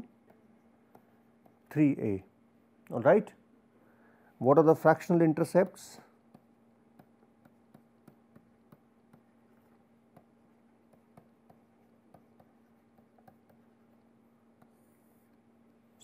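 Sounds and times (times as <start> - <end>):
faint steady hum: 0.0 - 16.0
stylus tapping a tablet: 5.6 - 15.4.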